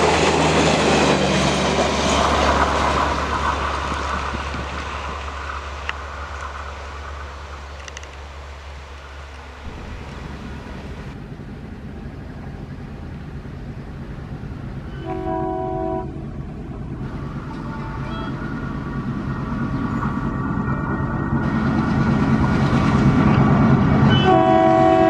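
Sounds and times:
diesel locomotive engine drone: 0:00.0 - 0:25.0
train horn blast: 0:14.9 - 0:16.3, 0:24.0 - 0:25.0.

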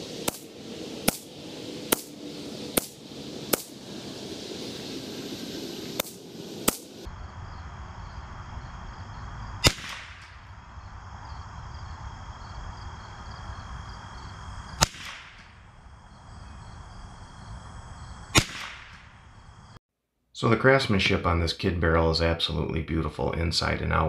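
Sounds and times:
rifle shots with echo: 0:09.6 - 0:10.4, 0:14.8 - 0:15.4, 0:18.3 - 0:19.0.

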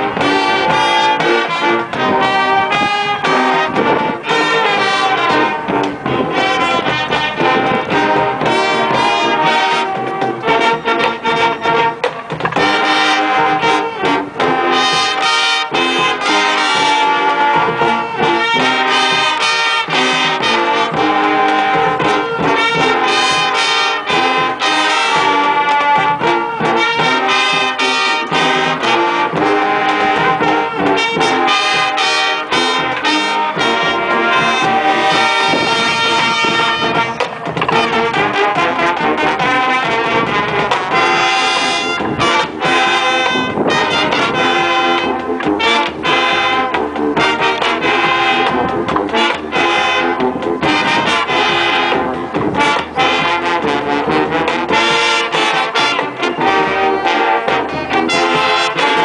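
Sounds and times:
drum hits: 0:00.0 - 0:59.0
marching band brass section: 0:00.0 - 0:59.0.

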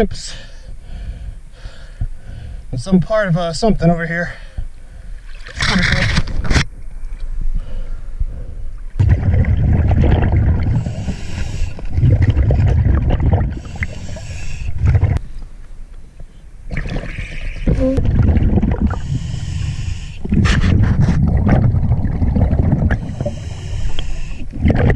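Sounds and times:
exhaled bubbles rumbling: 0:08.7 - 0:15.2, 0:16.7 - 0:24.9
regulator inhale hiss: 0:10.8 - 0:11.9, 0:13.6 - 0:14.8, 0:18.9 - 0:20.2, 0:23.0 - 0:24.5.

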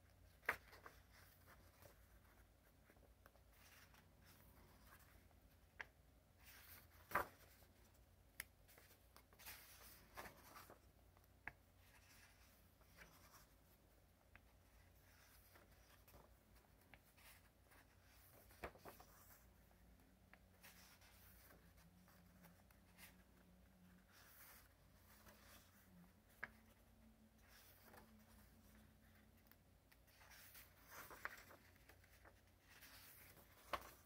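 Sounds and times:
paper pages rustling: 0:00.1 - 0:34.0
light paper flicks and taps: 0:29.4 - 0:34.0.

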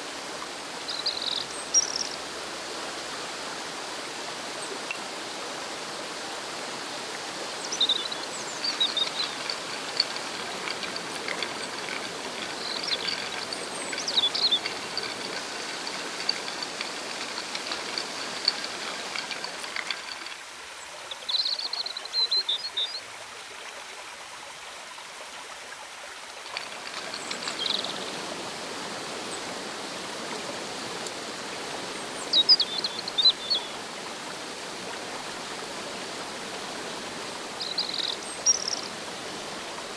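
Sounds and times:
river rushing over rocks: 0:00.0 - 0:21.2, 0:26.1 - 0:39.9
small birds chirping: 0:00.9 - 0:02.2, 0:07.6 - 0:20.4, 0:21.1 - 0:23.0, 0:26.6 - 0:28.2, 0:32.0 - 0:33.8, 0:37.6 - 0:39.0.

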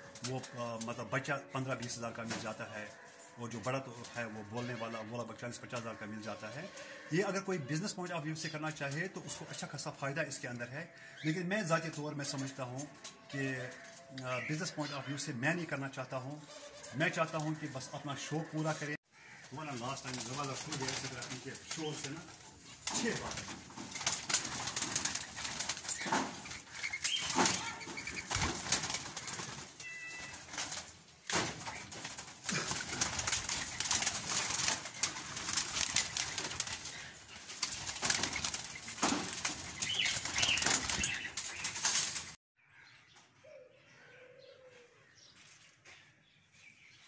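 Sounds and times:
doves flapping wings: 0:19.4 - 0:42.4.

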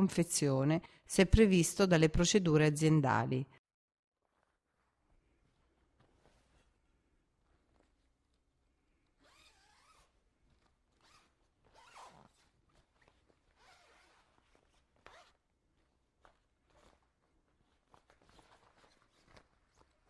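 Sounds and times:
zipper pulls: 0:09.2 - 0:15.5, 0:16.2 - 0:20.0.

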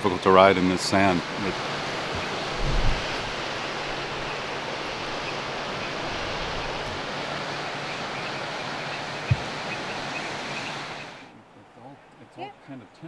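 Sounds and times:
sea surf rushing: 0:00.0 - 0:11.3
wind: 0:00.0 - 0:13.0
short low thump: 0:02.2 - 0:03.3.

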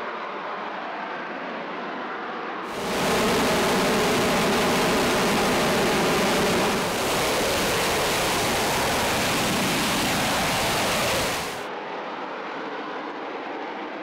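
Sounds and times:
jet engine roar: 0:02.7 - 0:11.7.

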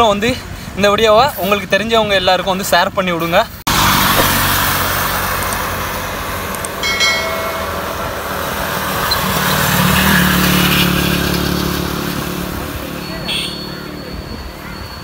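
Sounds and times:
tyres hissing on wet road: 0:03.2 - 0:06.6
motorcycle engine drone: 0:03.7 - 0:14.0
high-pitched tone: 0:06.8 - 0:08.9.

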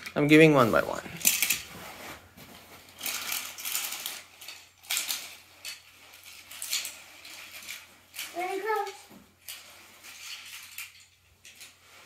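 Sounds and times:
toy cars clinking: 0:01.2 - 0:01.7, 0:02.9 - 0:12.0.

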